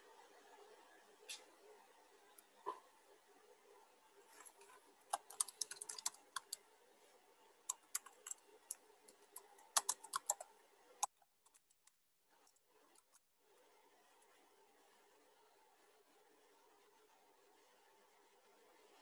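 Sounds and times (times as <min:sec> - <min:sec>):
keyboard key clicks: 0:07.7 - 0:10.4.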